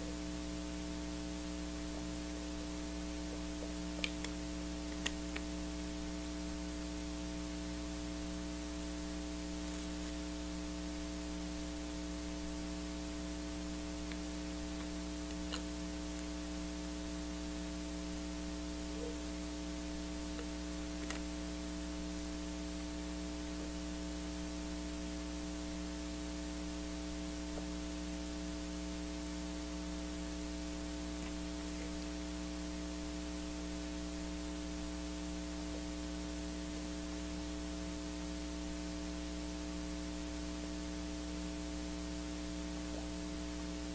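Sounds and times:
constant hiss: 0.0s - 43.9s
electrical mains hum: 0.0s - 43.9s
faint clicks: 20.3s - 21.3s.

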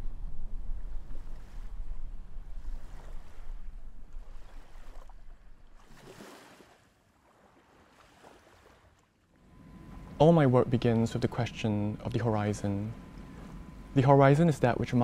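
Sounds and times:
low rumble: 0.0s - 5.8s
water lapping: 0.8s - 15.0s.

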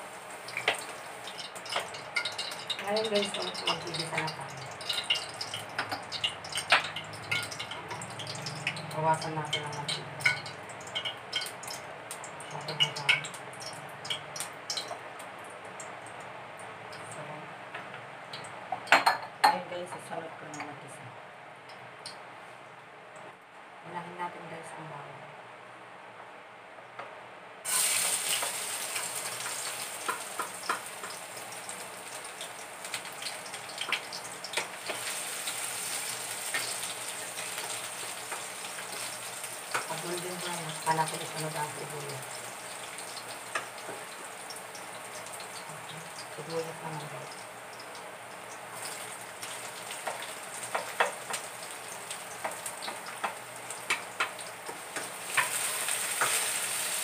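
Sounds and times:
garlic sizzling in hot oil: 0.0s - 15.8s, 27.6s - 57.0s.

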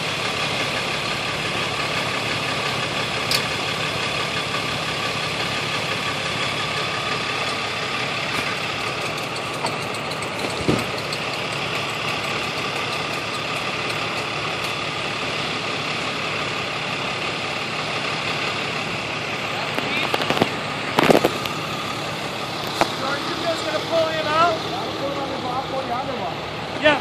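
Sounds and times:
heavy truck engine idling: 0.0s - 27.0s
short thump: 10.5s - 10.9s.

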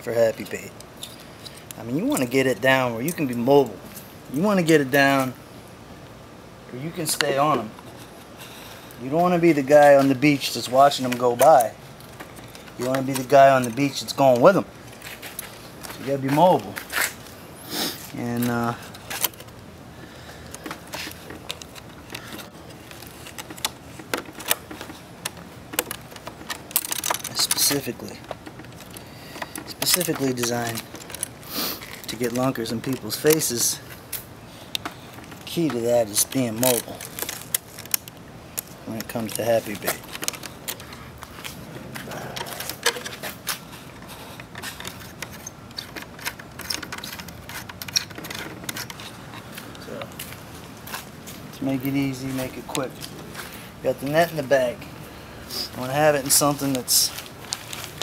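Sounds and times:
metal clamp band clicking and scraping: 20.4s - 51.0s.

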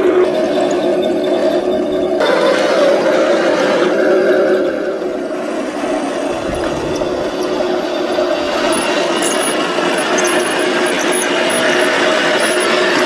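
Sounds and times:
toy tank motor whine: 0.0s - 13.0s
high squeaks: 4.7s - 13.0s
tracks grinding on gravel: 5.7s - 13.0s.

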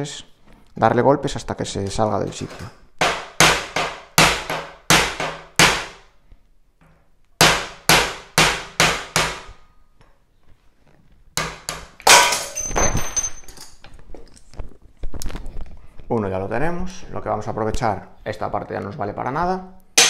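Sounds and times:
hammer striking metal punch: 3.0s - 6.0s, 7.4s - 9.5s, 11.4s - 13.0s.

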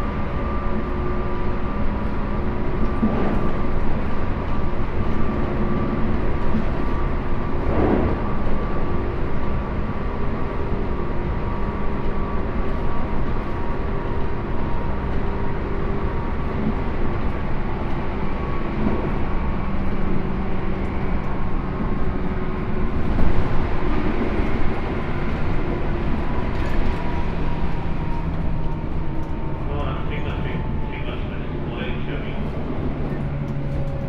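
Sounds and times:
train wheels rumbling on track: 0.0s - 34.0s.

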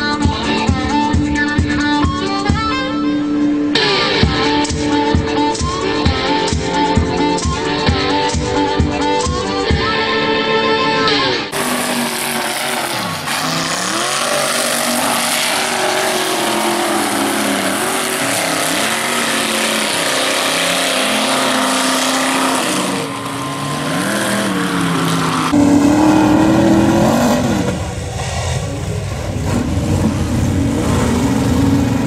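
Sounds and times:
truck engine revving: 11.1s - 32.0s.

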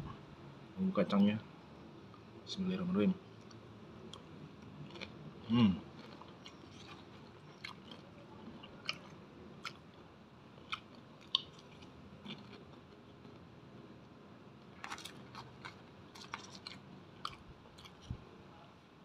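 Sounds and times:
crunchy chewing: 3.3s - 13.5s, 14.6s - 18.3s.

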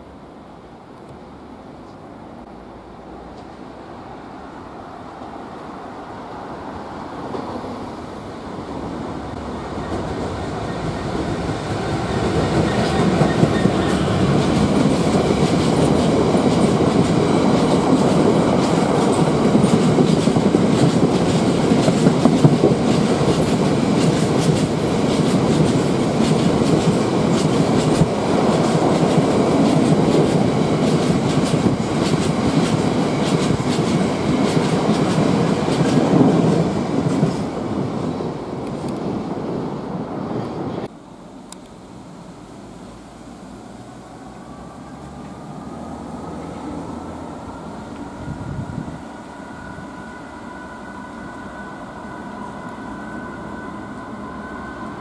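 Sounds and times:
diesel locomotive engine: 0.0s - 55.0s
train wagons clickety-clack: 9.7s - 37.8s.

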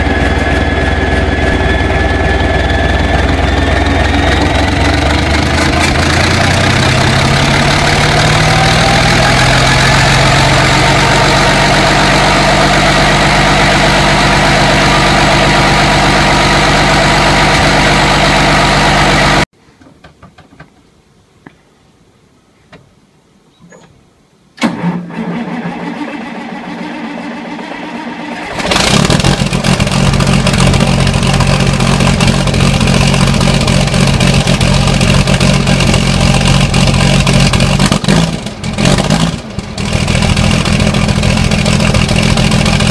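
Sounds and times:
large diesel engine running: 0.0s - 19.5s, 24.7s - 42.9s
tractor diesel engine running: 0.0s - 19.5s, 24.6s - 42.9s
engine cranking: 24.6s - 42.9s.

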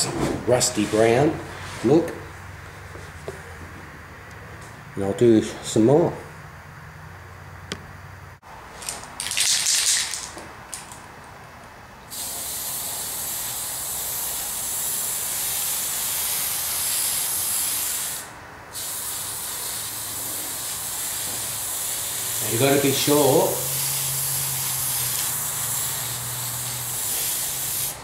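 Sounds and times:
spray can hissing: 8.8s - 10.9s, 12.1s - 28.0s.

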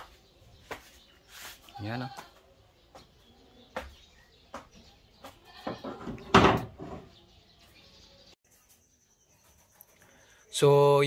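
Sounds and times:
goat bleating: 5.4s - 5.8s.

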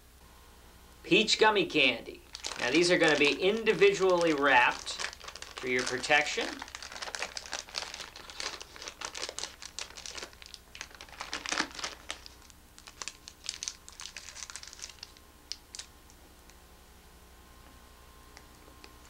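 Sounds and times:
plastic wrappers crinkling: 2.2s - 15.9s.

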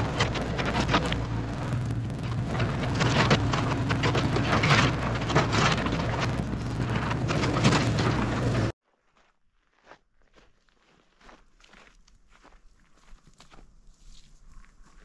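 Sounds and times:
crackling and snapping: 0.0s - 8.7s
low machine hum: 0.0s - 8.7s.

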